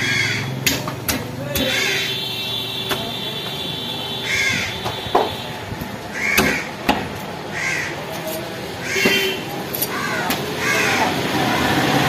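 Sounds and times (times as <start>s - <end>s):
crows cawing: 0.0s - 0.6s, 1.6s - 2.1s, 4.2s - 4.8s, 6.1s - 6.8s, 7.5s - 8.1s, 8.8s - 9.2s, 9.9s - 11.2s
cleaver chopping on wooden block: 0.6s - 1.9s, 4.8s - 7.2s.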